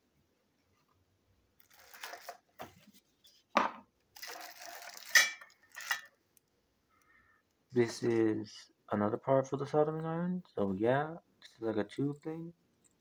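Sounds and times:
plastic packaging crinkling: 1.6 - 2.6.

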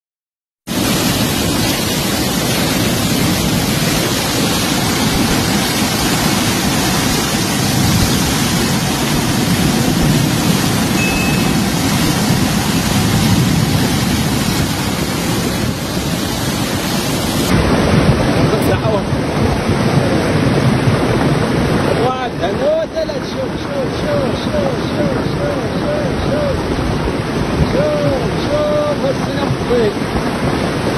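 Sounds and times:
flooded river rushing: 0.7 - 30.9.

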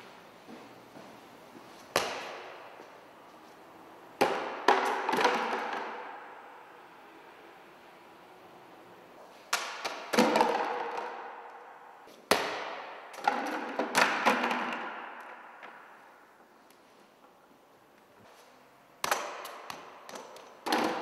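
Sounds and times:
plastic bucket and ball clattering: 4.7 - 6.0, 10.0 - 11.2, 13.2 - 15.0, 20.1 - 21.0.

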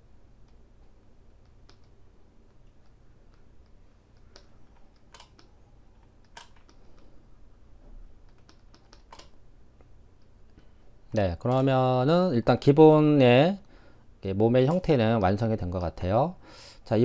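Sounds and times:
low steady hum: 0.0 - 17.0
key presses and mouse clicks: 0.4 - 7.1, 8.2 - 10.3.

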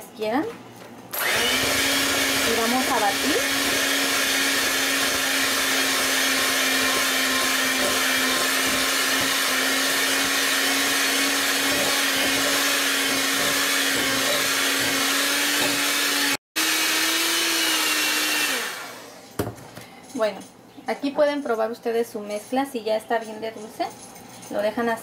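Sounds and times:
electric hand mixer running: 1.1 - 19.2.

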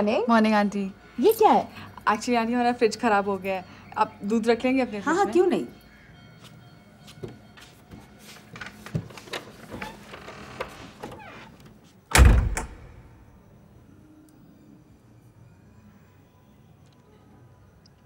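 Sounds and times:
door shutting with heavy thump: 12.1 - 13.0.

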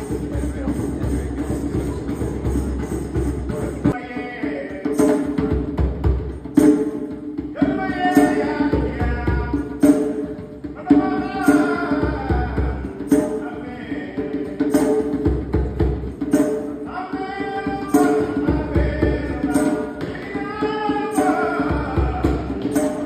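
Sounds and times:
djembe hand drumming: 0.0 - 23.0
person singing: 7.5 - 10.1, 10.7 - 14.9, 16.8 - 23.0.

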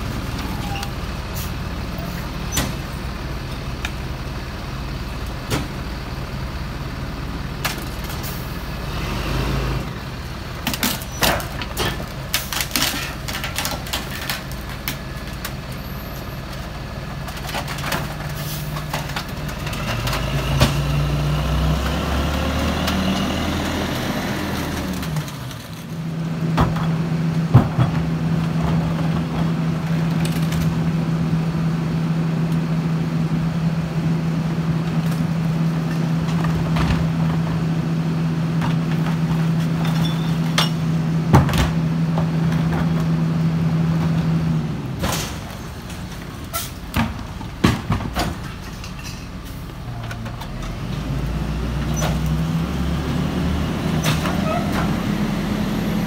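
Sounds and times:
garbage truck diesel engine: 0.0 - 56.0
trash knocking and clattering: 26.4 - 30.8, 35.9 - 37.6, 38.6 - 43.2, 45.0 - 49.3.

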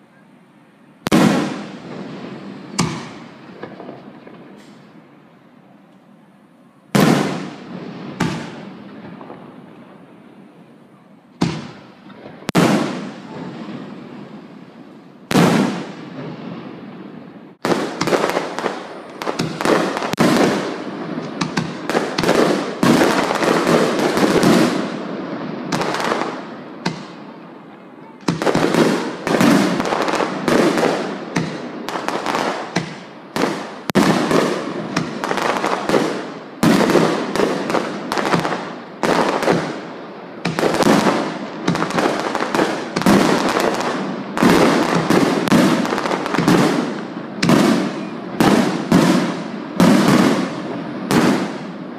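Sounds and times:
firework shells bursting: 17.6 - 25.0.

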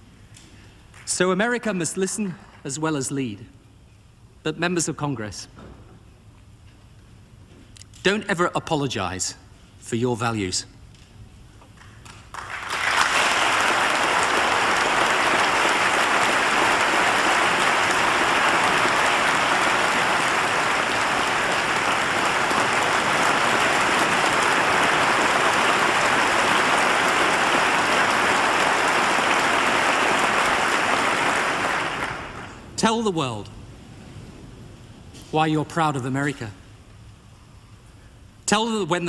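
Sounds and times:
large audience applauding: 11.8 - 32.7.

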